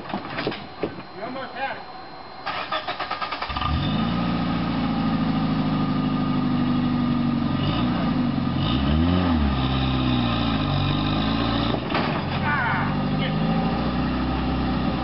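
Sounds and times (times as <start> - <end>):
engine cranking on starter: 2.4 - 4.0
engine idling and revving: 2.7 - 15.0.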